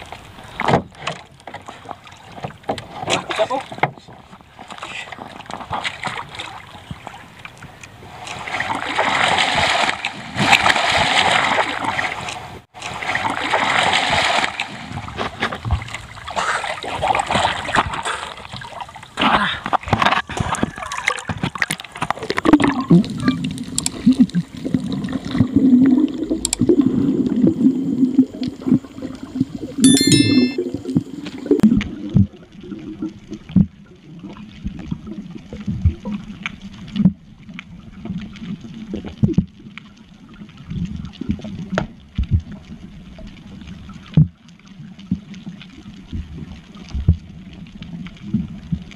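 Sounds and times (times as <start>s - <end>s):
water splashing and sloshing: 0.0s - 29.8s, 30.7s - 48.9s.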